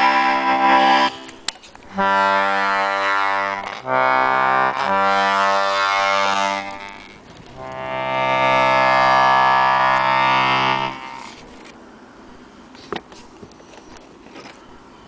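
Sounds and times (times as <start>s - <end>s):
accordion playing held chords: 0.0s - 11.5s.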